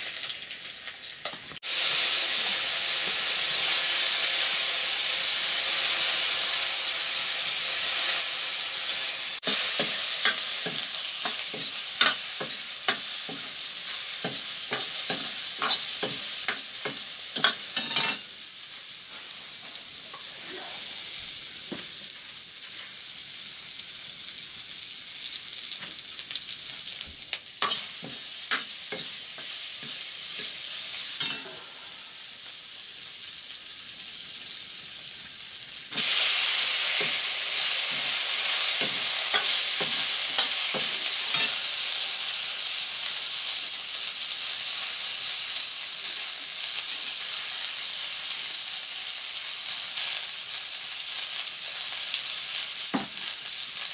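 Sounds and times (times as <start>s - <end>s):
food sizzling in a pan: 0.0s - 53.9s.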